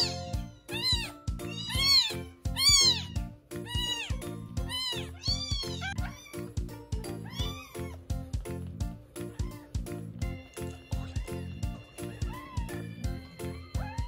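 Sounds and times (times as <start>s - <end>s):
kitten mewing: 0.0s - 8.1s, 12.0s - 13.0s
background music: 0.0s - 14.0s.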